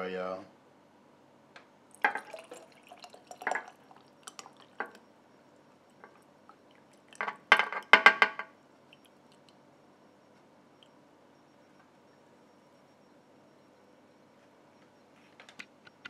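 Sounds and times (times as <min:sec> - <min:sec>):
grease dripping into jar: 0:01.9 - 0:05.0, 0:05.7 - 0:08.1, 0:08.9 - 0:09.6.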